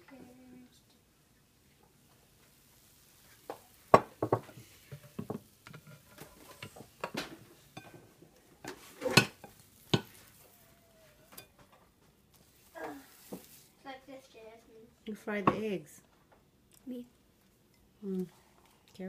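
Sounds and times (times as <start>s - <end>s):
pan knocking against plates: 4.0s - 10.2s.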